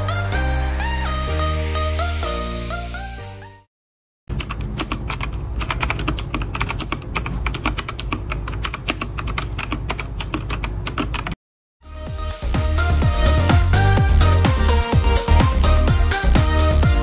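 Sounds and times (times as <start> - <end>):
fast typing on mechanical keyboard: 4.3 - 11.4.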